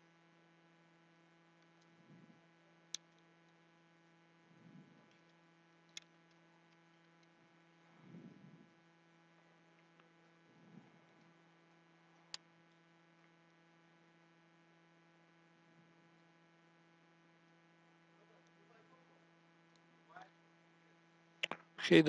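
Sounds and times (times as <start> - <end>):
faint electrical hum: 0.0 - 22.0
small sharp click: 21.4 - 21.7.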